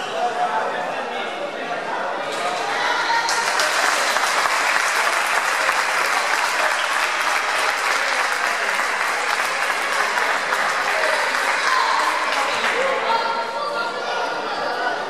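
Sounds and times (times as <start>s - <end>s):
spectators applauding: 2.3s - 13.2s.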